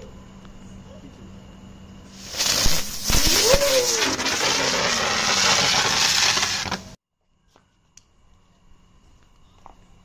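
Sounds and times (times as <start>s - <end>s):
firework hissing: 2.1s - 7.0s
firework pops: 2.2s - 7.0s.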